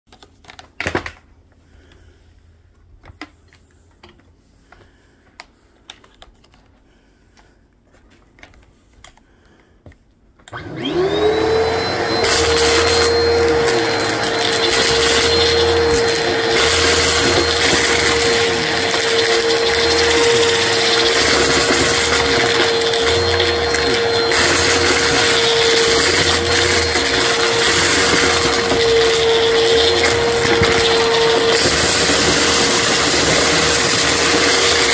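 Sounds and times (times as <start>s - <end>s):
vacuum cleaner motor running: 10.5s - 34.9s.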